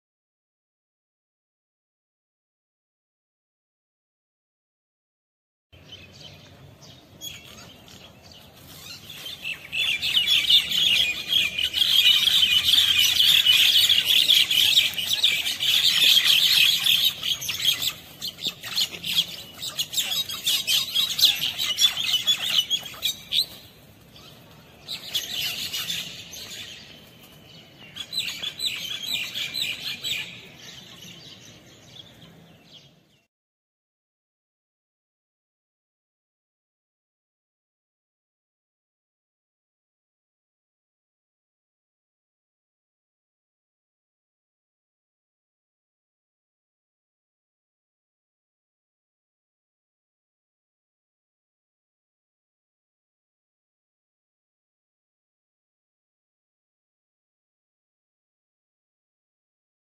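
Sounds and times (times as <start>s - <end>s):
small birds chirping: 5.8s - 33.3s.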